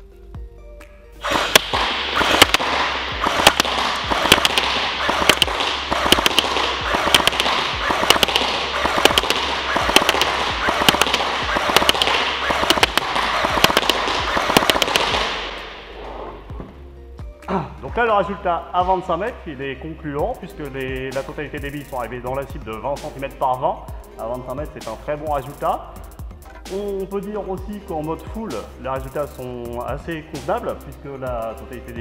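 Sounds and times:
airsoft rifle firing full-auto: 0:01.2 - 0:16.0
pellets hitting paper target: 0:01.2 - 0:16.6.

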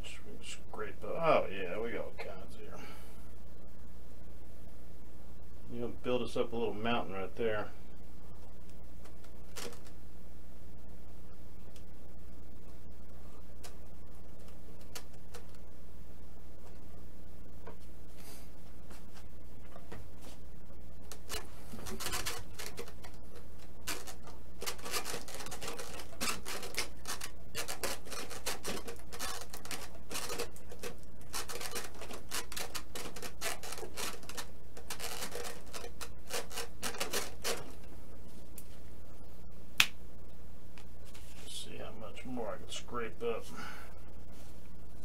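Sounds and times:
low hum: 0:00.0 - 0:45.0
dry rubbing and scraping: 0:17.7 - 0:38.9, 0:41.0 - 0:42.9.

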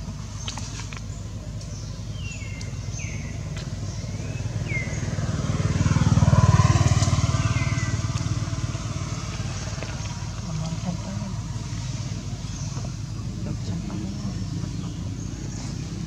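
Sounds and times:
passing vehicle engine hum: 0:00.0 - 0:16.0
bird chirps: 0:00.3 - 0:10.9.

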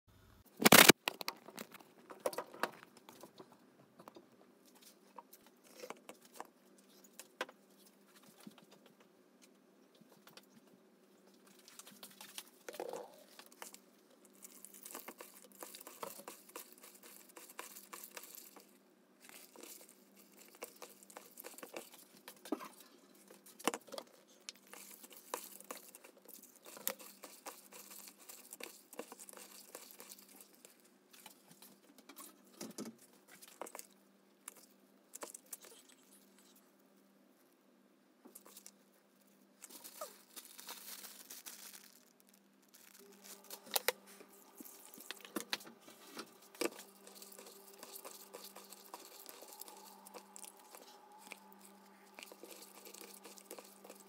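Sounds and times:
crinkling and rubbing: 0:09.9 - 0:36.7, 0:38.3 - 0:54.0.

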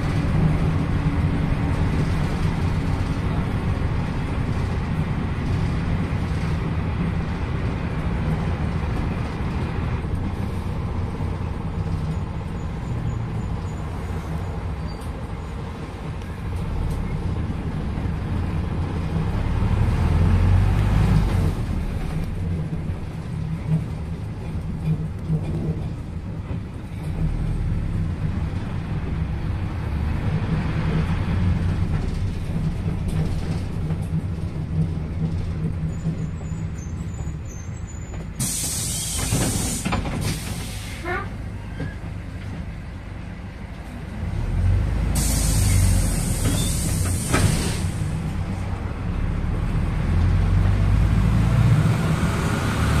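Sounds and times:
bus diesel engine running: 0:00.0 - 0:53.0
air brake hiss: 0:38.4 - 0:41.1, 0:45.1 - 0:48.2.

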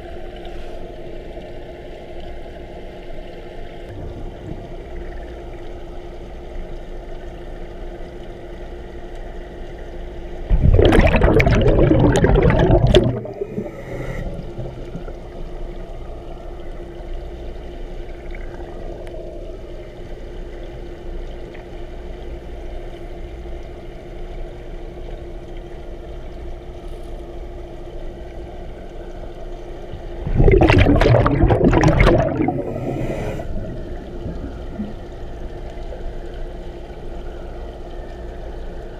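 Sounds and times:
underwater hum: 0:00.0 - 0:38.9
diver exhaling bubbles: 0:10.5 - 0:15.6, 0:30.0 - 0:35.2.

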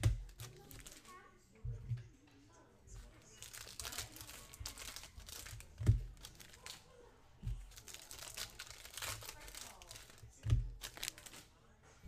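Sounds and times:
foil wrappers crinkling and tearing: 0:00.3 - 0:01.1, 0:03.1 - 0:06.9, 0:07.7 - 0:11.5.

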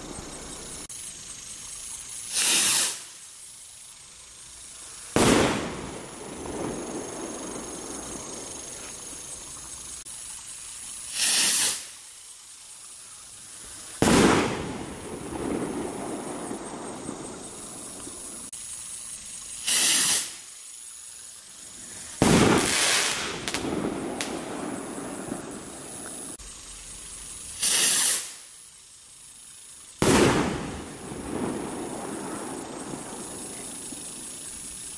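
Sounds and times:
firework rocket whoosh: 0:02.2 - 0:03.2, 0:05.1 - 0:09.8, 0:11.1 - 0:12.0, 0:13.6 - 0:18.5, 0:19.6 - 0:20.5, 0:21.6 - 0:26.4, 0:27.6 - 0:28.5, 0:30.0 - 0:34.9
small firework crack: 0:02.2 - 0:03.3, 0:05.0 - 0:10.0, 0:11.1 - 0:12.0, 0:13.7 - 0:18.5, 0:19.6 - 0:20.8, 0:21.8 - 0:26.4, 0:27.6 - 0:28.6, 0:29.9 - 0:34.9
firework bursting with loud bang: 0:05.1 - 0:09.2, 0:14.0 - 0:18.5, 0:19.6 - 0:20.4, 0:21.9 - 0:26.4, 0:27.6 - 0:28.4, 0:30.0 - 0:34.4.

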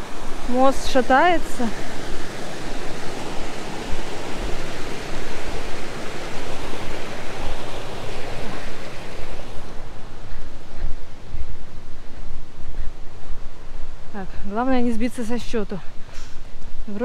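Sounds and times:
river rushing: 0:00.0 - 0:12.6.

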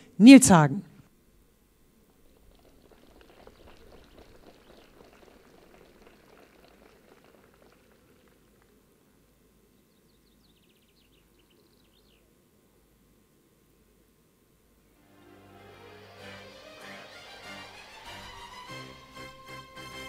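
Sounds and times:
faint crackling patter: 0:02.0 - 0:09.4.

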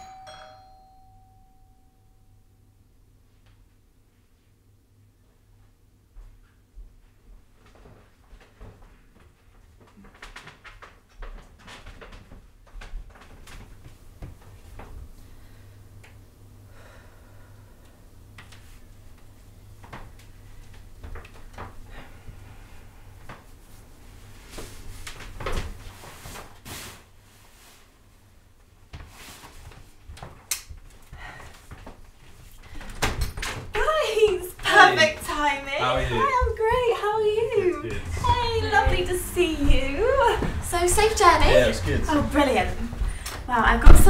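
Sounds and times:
faint low hum: 0:00.0 - 0:11.3, 0:32.6 - 0:44.0
footsteps: 0:36.2 - 0:44.0.

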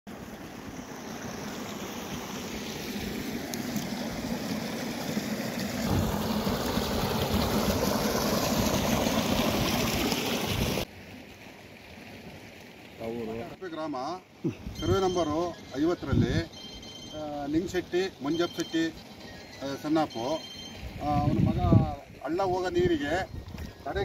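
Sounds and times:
floodwater rushing: 0:00.1 - 0:16.2.

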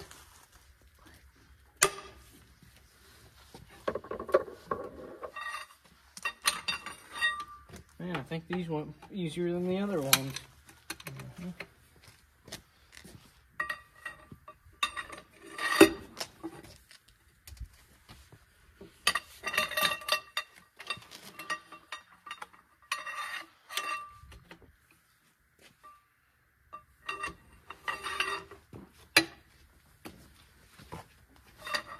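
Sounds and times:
metal tools clinking on wheel bolts: 0:04.8 - 0:11.7, 0:13.6 - 0:16.7, 0:19.0 - 0:24.4, 0:26.7 - 0:29.5, 0:31.5 - 0:31.9.

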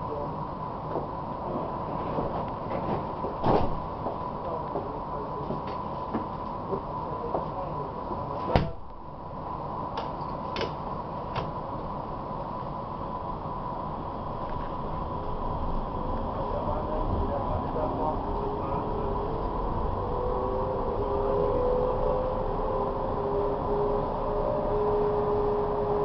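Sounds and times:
tram interior running noise: 0:00.0 - 0:26.0
sharp clicks and knocks: 0:10.0 - 0:11.5.

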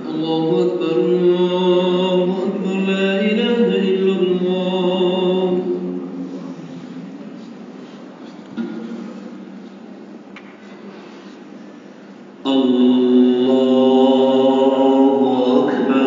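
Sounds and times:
man chanting: 0:00.0 - 0:06.5, 0:12.4 - 0:16.0.

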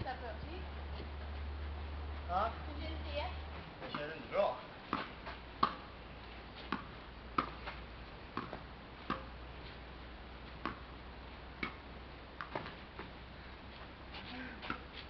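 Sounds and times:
tennis ball knocks: 0:04.9 - 0:05.9, 0:06.7 - 0:07.7, 0:08.4 - 0:09.3, 0:10.6 - 0:10.8.

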